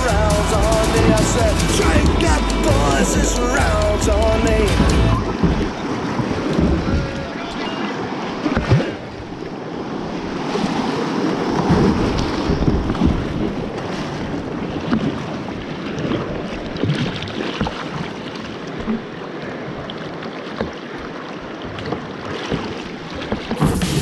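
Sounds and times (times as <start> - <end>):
river water rushing: 0.0 - 12.6
paddle splashes: 0.0 - 24.0.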